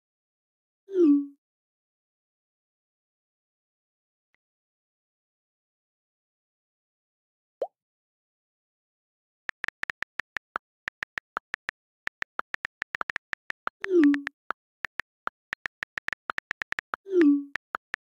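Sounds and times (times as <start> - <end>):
phone keyboard key clicks: 9.5 - 18.0.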